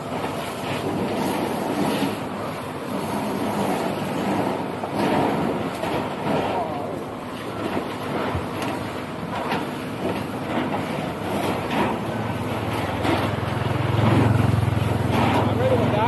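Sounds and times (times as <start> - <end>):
motorcycle engine running: 11.4 - 16.0.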